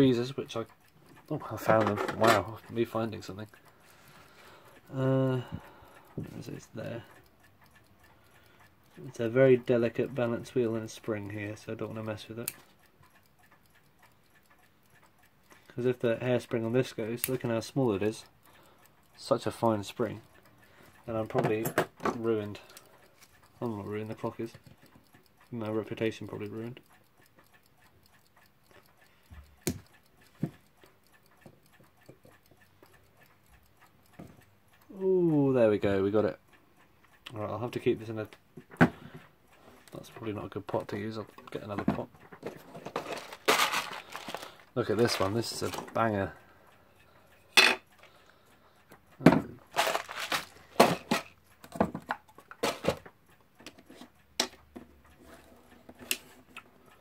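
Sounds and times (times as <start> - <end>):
mechanical clock ticking: 0.0 - 57.0
clicks of small metal parts: 41.4 - 46.0, 49.2 - 54.9.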